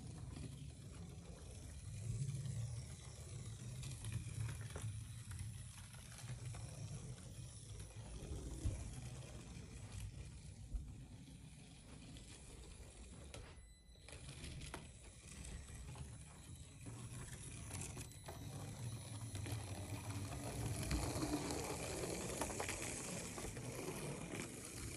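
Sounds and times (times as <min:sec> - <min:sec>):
toy car motors whirring: 0:00.0 - 0:24.9.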